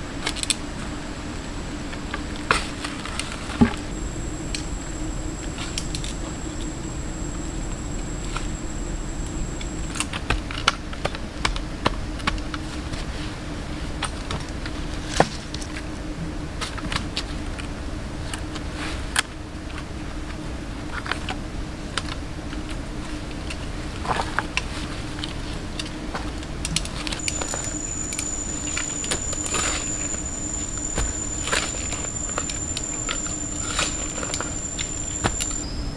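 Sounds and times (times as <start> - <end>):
steady low hum: 0.8 - 10.3, 27.2 - 35.9.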